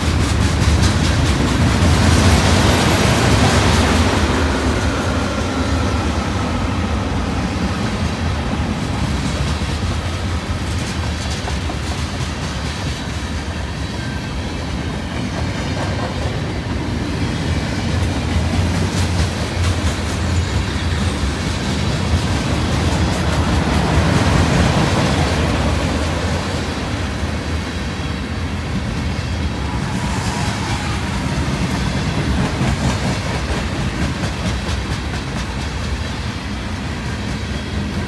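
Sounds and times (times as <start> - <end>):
wheels clacking over rail joints: 0.0 - 5.1
train wheels rumbling on rails: 0.0 - 38.0.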